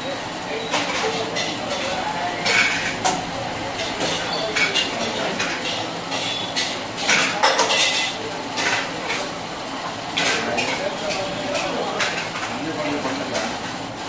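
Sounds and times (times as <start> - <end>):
steel dishes clattering: 3.8 - 9.2.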